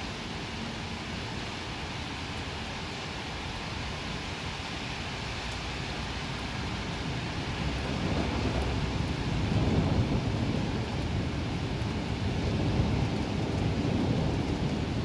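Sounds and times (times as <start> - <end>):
steady rain hissing: 0.0 - 15.0
thunder rumbling: 6.6 - 15.0.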